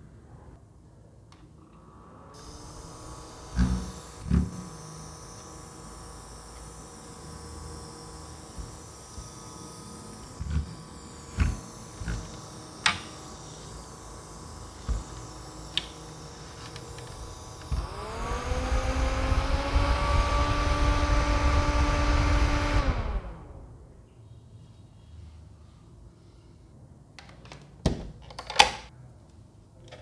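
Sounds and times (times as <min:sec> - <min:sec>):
fan motor whirring: 0:02.4 - 0:24.0.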